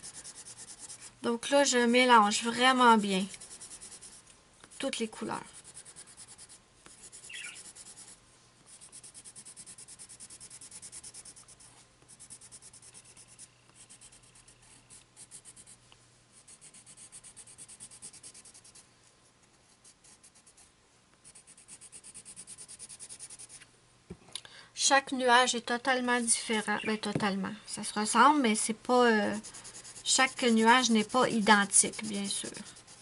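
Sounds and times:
pencil scratching on paper: 0:00.0 - 0:15.8, 0:16.4 - 0:18.8, 0:19.6 - 0:20.6, 0:21.2 - 0:23.6, 0:29.1 - 0:33.0.

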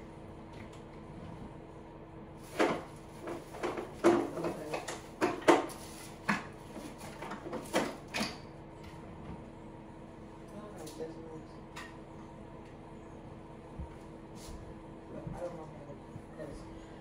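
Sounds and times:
steady low hum: 0:00.0 - 0:17.0
objects knocking and clattering: 0:02.5 - 0:08.4.

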